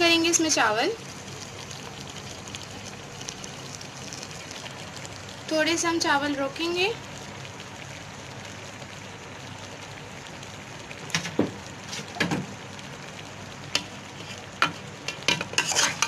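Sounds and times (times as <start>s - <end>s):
low sizzle from pot: 0.0s - 16.0s
metal spoon scraping steel pot: 15.5s - 16.0s.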